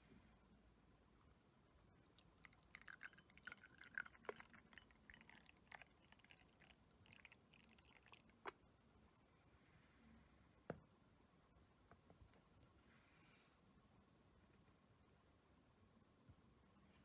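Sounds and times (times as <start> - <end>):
tea pouring into a cup: 1.8 - 8.6.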